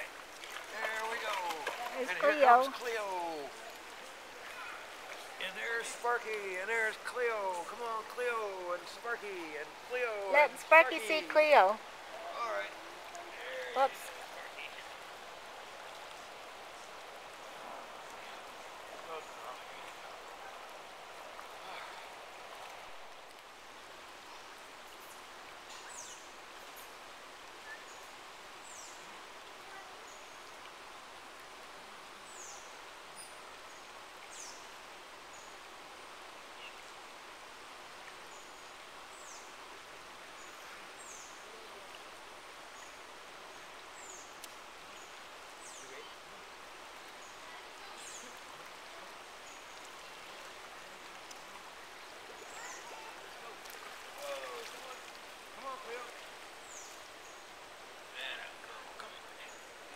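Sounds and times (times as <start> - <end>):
river water rushing over rocks: 0.0 - 59.9.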